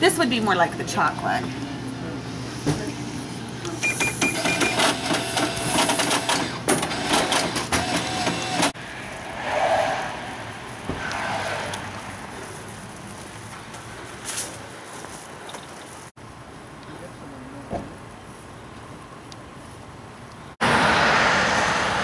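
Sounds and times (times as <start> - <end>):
steady outdoor noise: 0.0 - 22.0
cash register beep: 3.8 - 8.6.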